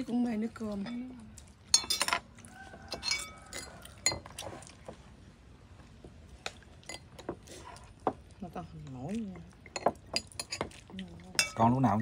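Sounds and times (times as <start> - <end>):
utensils clinking on dishes: 1.7 - 2.3, 2.9 - 4.5, 9.6 - 12.0.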